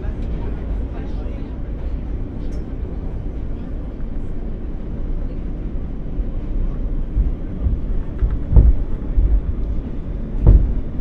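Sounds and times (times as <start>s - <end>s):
subway train rumble: 0.0s - 11.0s
train wheels thumping on track: 7.1s - 11.0s.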